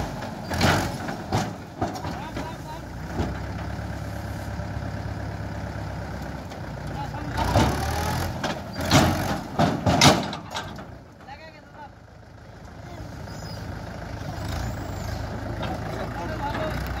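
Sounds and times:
loud knocks and thuds: 0:00.0 - 0:03.5, 0:07.4 - 0:10.9
tractor diesel engine running: 0:00.0 - 0:17.0.

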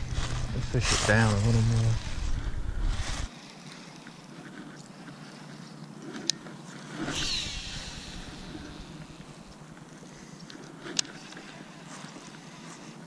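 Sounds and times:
line whirring off a spool: 0:04.6 - 0:11.5
fishing rod swish: 0:06.9 - 0:09.5.

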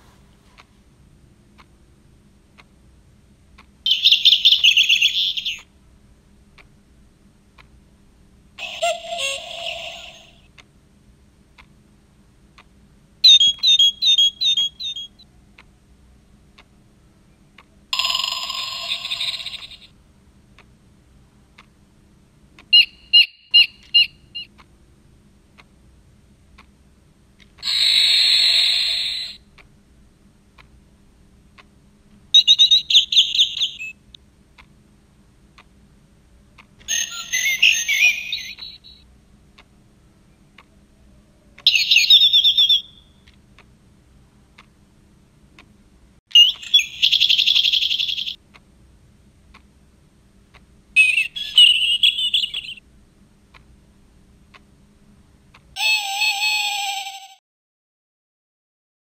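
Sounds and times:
clock playing recorded birdsong: 0:03.6 - 0:05.7, 0:08.6 - 0:10.6, 0:13.2 - 0:15.7, 0:17.3 - 0:20.0, 0:22.6 - 0:24.6, 0:27.6 - 0:29.6, 0:32.3 - 0:34.1, 0:36.9 - 0:39.1, 0:41.6 - 0:43.3, 0:46.3 - 0:48.5, 0:51.0 - 0:52.9.

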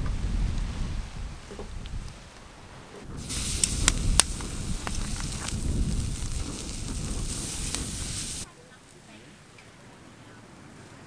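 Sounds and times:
fire pops and crackles: 0:00.0 - 0:08.5
low wind rumble: 0:00.0 - 0:08.5
steak sizzling on grill: 0:03.1 - 0:08.5.

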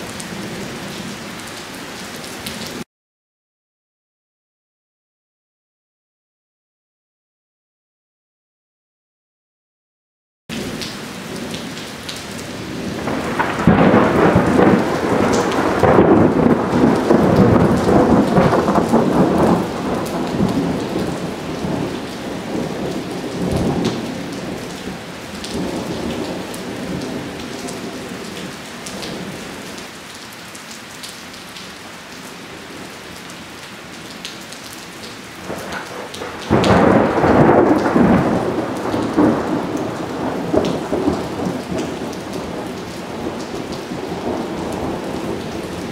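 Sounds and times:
heavy rain: 0:00.0 - 0:02.9, 0:10.5 - 0:45.9
thunder rolling: 0:12.7 - 0:28.0, 0:35.5 - 0:45.9.

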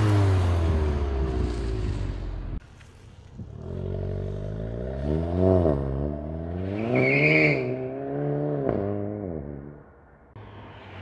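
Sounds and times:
car engine accelerating hard: 0:00.0 - 0:02.6.

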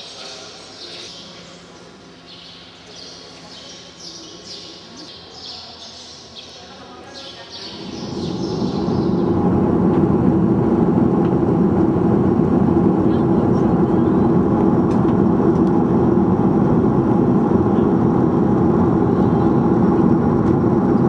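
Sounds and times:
small birds chirping: 0:00.1 - 0:09.3
airplane cabin noise: 0:06.8 - 0:21.0.

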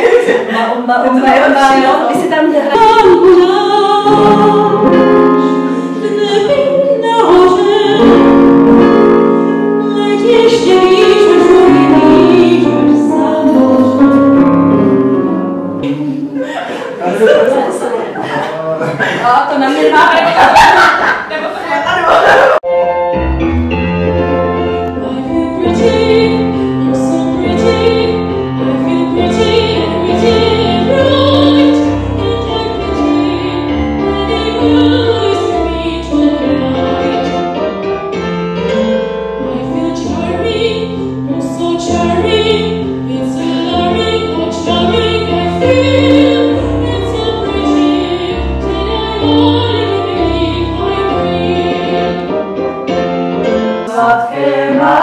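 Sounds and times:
keyboard piano chords: 0:00.0 - 0:17.9, 0:22.0 - 0:55.0
woman singing: 0:00.3 - 0:08.9, 0:09.8 - 0:14.2, 0:25.0 - 0:37.4, 0:39.5 - 0:52.2, 0:53.9 - 0:55.0.

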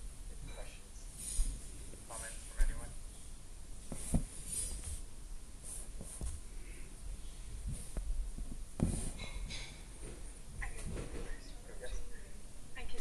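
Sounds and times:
soft knocks and rustles: 0:03.8 - 0:05.1, 0:05.7 - 0:06.4, 0:07.6 - 0:11.5.

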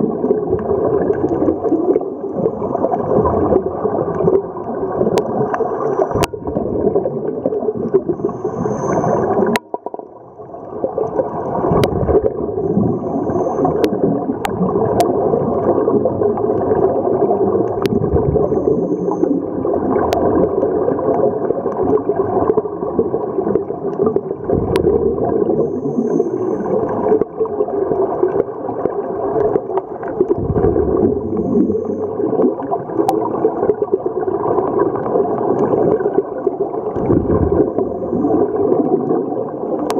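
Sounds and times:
underwater regulator bubbles: 0:00.0 - 0:39.9.

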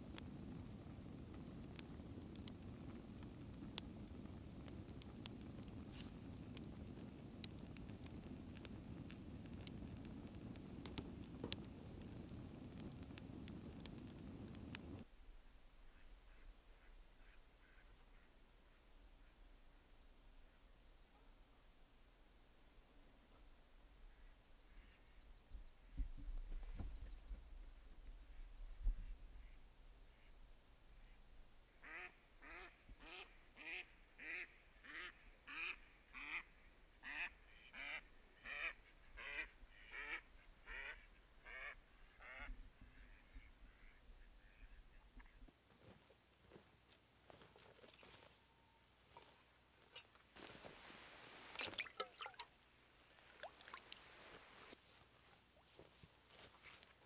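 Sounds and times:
wind buffeting microphone: 0:00.0 - 0:15.0
short water splashes: 0:51.3 - 0:52.6, 0:53.2 - 0:54.7
water sloshing and dripping: 0:51.5 - 0:52.6, 0:53.2 - 0:54.2.

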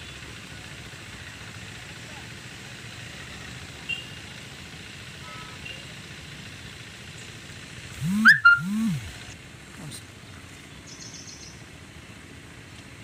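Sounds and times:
faint short chirps: 0:08.0 - 0:09.1.

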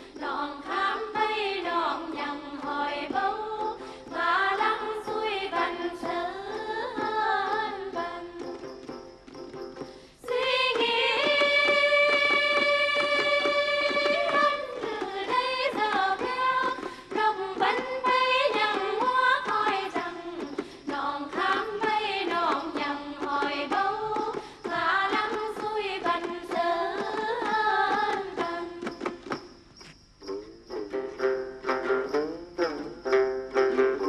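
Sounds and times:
person singing melody: 0:30.2 - 0:34.0.

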